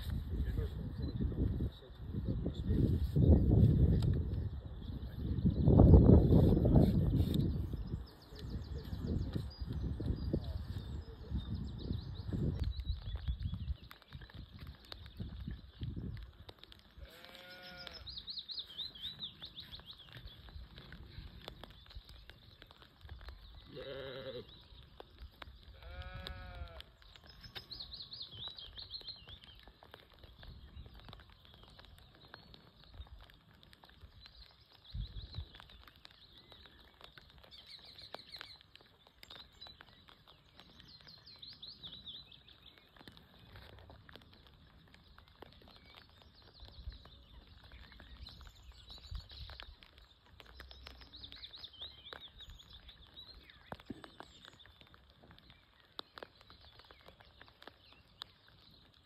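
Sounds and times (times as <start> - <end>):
light rain: 0.0 - 59.0
bleat: 17.0 - 18.1, 23.7 - 24.5, 25.7 - 26.9.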